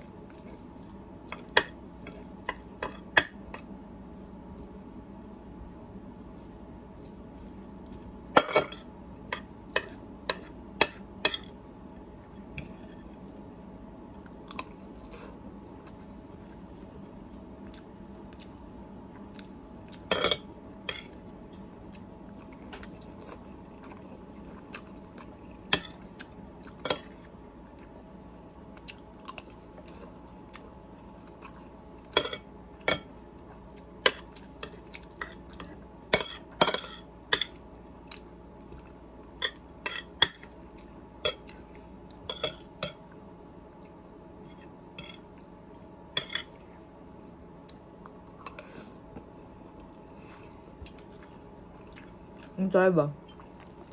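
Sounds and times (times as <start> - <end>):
fork clinking on plate: 45.0 - 45.2
chewing noodles: 46.4 - 52.6.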